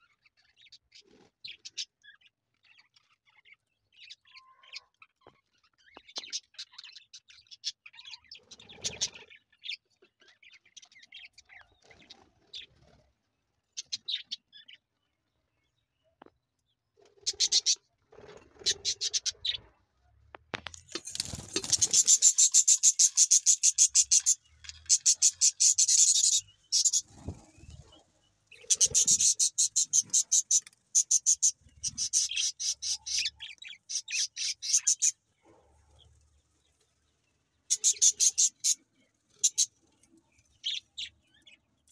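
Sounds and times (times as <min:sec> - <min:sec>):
chicks chirping: 0:20.7 - 0:36.0.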